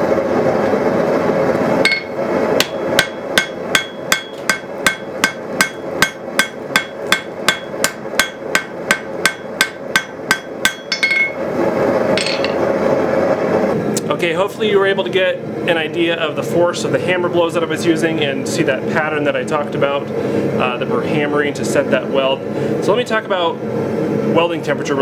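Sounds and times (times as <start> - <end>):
gas forge roaring: 0.0 - 25.0
hammer striking metal on anvil: 1.8 - 11.4, 12.2 - 12.6.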